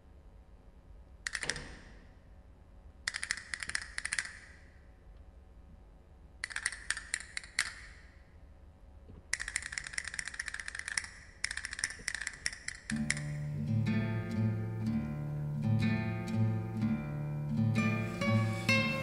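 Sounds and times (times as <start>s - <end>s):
percussion clicks: 3.1s - 4.6s, 6.4s - 8.1s, 9.1s - 13.5s.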